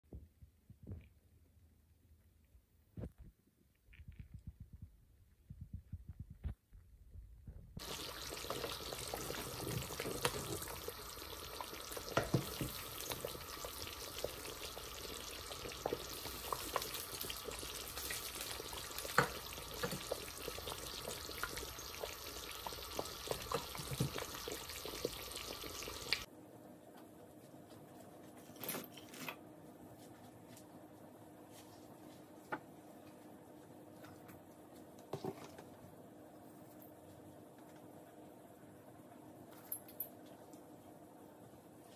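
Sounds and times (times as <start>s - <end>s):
curry simmering and sizzling: 7.8s - 26.3s.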